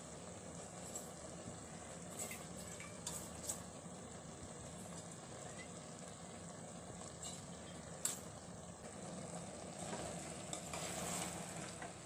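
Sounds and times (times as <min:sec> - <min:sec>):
food sizzling in pressure cooker: 0:00.0 - 0:12.0
ladle stirring and scraping: 0:00.6 - 0:01.4, 0:02.0 - 0:03.8, 0:09.7 - 0:12.0.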